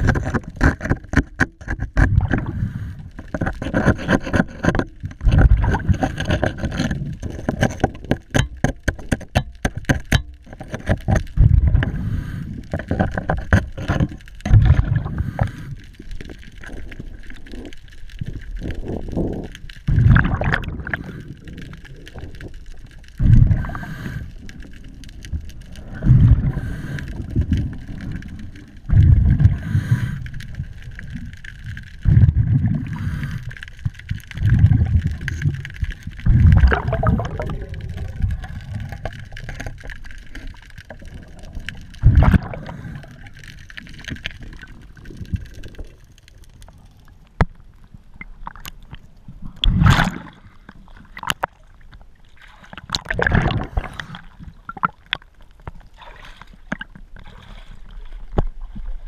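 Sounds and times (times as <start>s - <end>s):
underwater breath bubbling: 2.1s - 3.7s, 11.4s - 13.2s, 13.8s - 22.6s, 23.2s - 24.9s, 25.5s - 31.2s, 32.0s - 47.4s, 49.4s - 51.5s, 52.5s - 55.0s.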